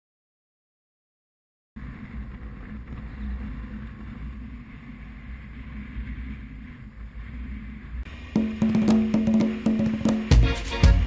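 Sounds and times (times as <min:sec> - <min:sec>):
wind noise on microphone: 0:01.8 - 0:08.1.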